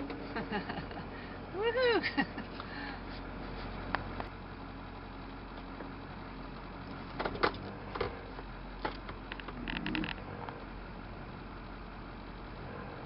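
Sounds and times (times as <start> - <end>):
truck engine running: 0.0 - 13.0
sharp knocks and clicks: 8.8 - 10.2.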